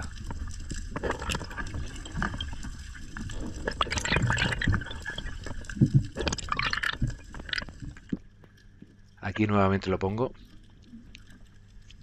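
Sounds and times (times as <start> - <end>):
water gurgling underwater: 0.0 - 9.1
small clicks and pops: 0.0 - 9.2, 10.0 - 12.0.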